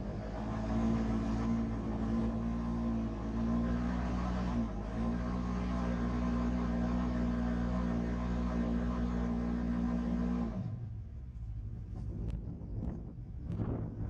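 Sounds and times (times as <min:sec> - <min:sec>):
engine pulling under load: 0:00.0 - 0:12.1
wind noise: 0:11.4 - 0:14.0.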